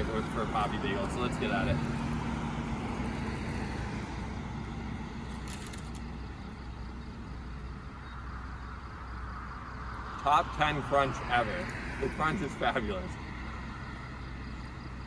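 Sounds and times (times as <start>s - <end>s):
road traffic rumble: 0.0s - 15.0s
short crackle: 5.3s - 6.1s.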